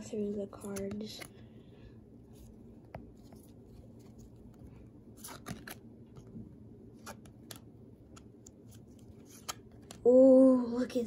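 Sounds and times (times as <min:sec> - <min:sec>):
papery rubbing of cards: 0:02.3 - 0:05.8.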